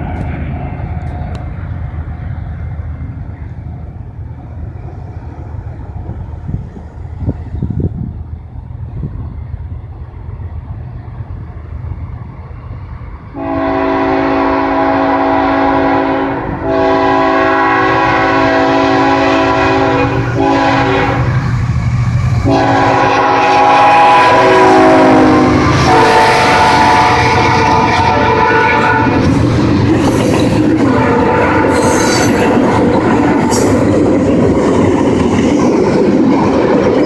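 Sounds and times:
low rumble of train: 0.0 - 37.0
locomotive air horn blasts: 13.4 - 21.4, 22.4 - 29.3, 30.8 - 32.4.

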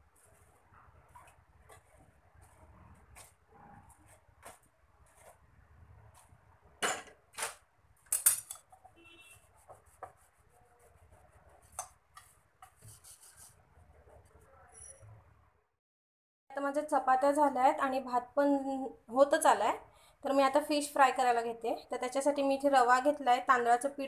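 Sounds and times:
metal utensils knocking and clinking: 8.1 - 8.7.

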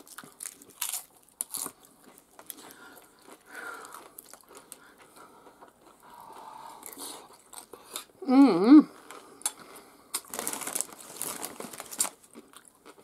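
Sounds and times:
chips crunching: 0.0 - 6.0, 9.0 - 13.0.

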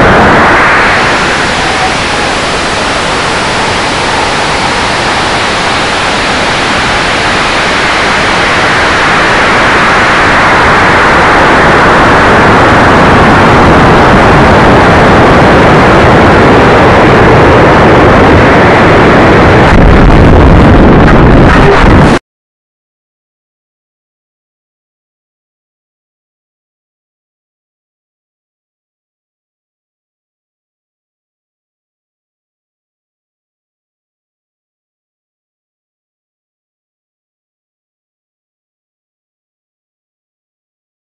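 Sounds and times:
heavy low rumble: 0.0 - 22.2.

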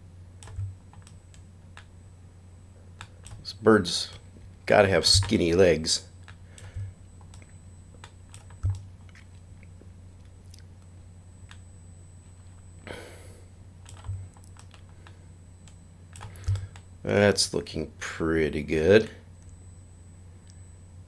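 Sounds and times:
steady low hum: 0.0 - 21.0
mouse and keyboard clicks: 13.8 - 14.9.

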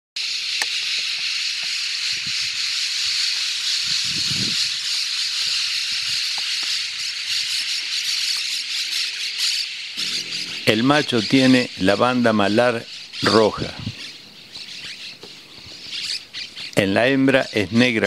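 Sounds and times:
dense high-pitched hiss: 0.2 - 18.0
faint low rumble: 10.0 - 11.7.

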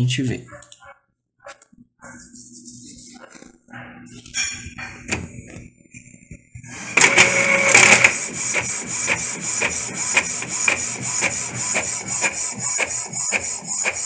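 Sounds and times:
inkjet printer whine: 6.7 - 14.0
print head clicking: 6.7 - 14.0.

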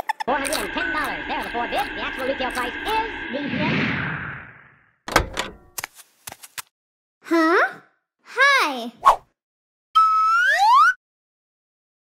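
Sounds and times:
cartoon whistle sliding upward: 10.0 - 11.0.

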